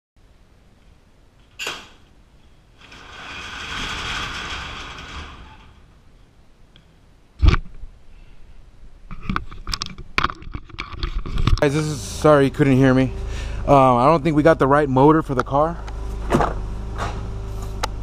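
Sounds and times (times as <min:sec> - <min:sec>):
garage door panels rattling up: 0:01.5 - 0:06.1
garage door release click: 0:01.6 - 0:02.0
loud thump: 0:16.2 - 0:17.2.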